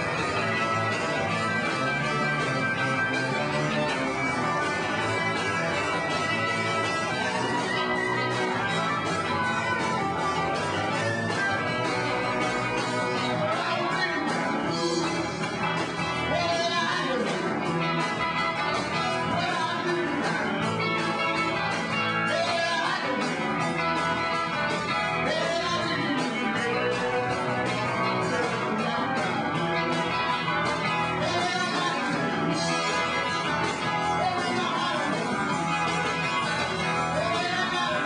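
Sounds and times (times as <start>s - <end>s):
live rock band: 0.0s - 38.0s
person singing: 13.0s - 20.6s, 22.2s - 24.2s, 25.2s - 38.0s.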